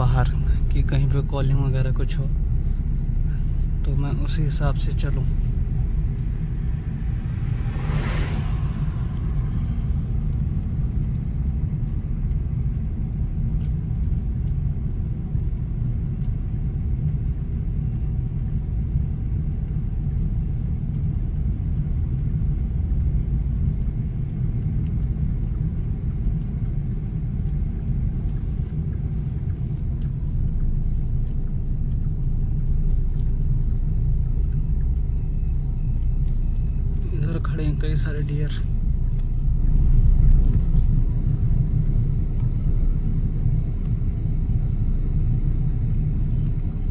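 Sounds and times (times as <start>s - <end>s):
car engine and tyre rumble: 0.0s - 46.9s
passing vehicle whoosh: 5.3s - 11.2s.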